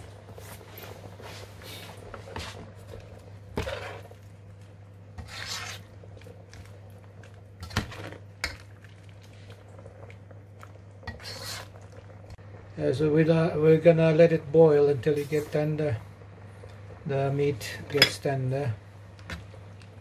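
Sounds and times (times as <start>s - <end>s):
low steady hum: 0.0s - 20.0s
metal ladle scraping pot: 3.5s - 4.2s, 5.2s - 6.0s, 7.6s - 8.8s, 11.0s - 11.9s.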